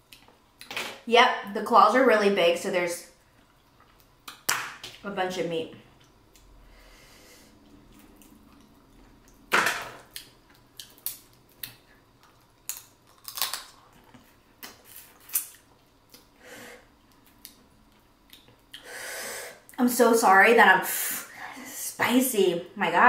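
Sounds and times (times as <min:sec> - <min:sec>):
shells cracking: 0:12.6 - 0:13.8.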